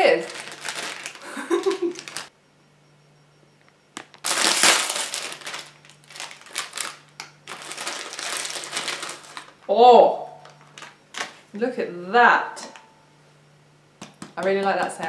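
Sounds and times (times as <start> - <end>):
plastic wrapper crinkling and tearing: 0.1 - 2.3, 4.1 - 9.7, 10.4 - 11.4.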